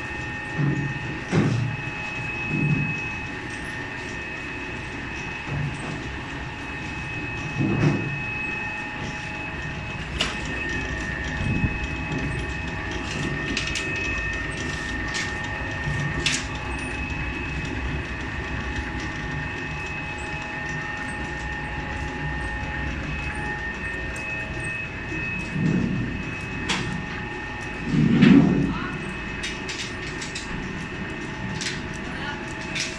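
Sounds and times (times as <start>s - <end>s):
noodle machine humming: 0.0s - 32.9s.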